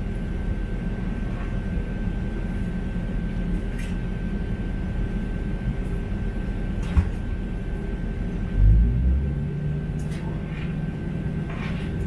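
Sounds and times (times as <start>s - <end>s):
vehicle interior rumble: 7.3s - 12.0s.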